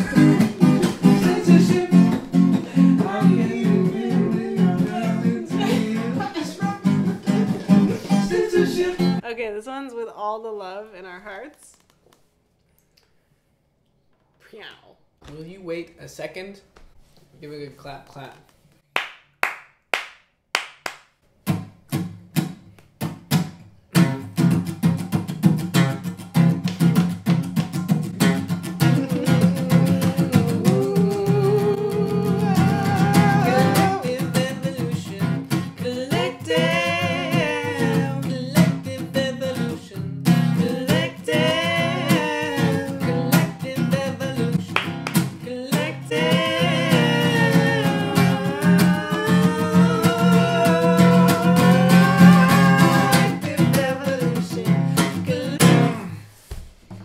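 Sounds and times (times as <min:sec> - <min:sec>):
man and woman singing: 0:00.0 - 0:09.2, 0:28.8 - 0:56.2
strummed acoustic guitar: 0:00.0 - 0:09.2, 0:21.4 - 0:56.2
hand claps: 0:18.8 - 0:21.2, 0:26.4 - 0:29.6, 0:44.6 - 0:45.4.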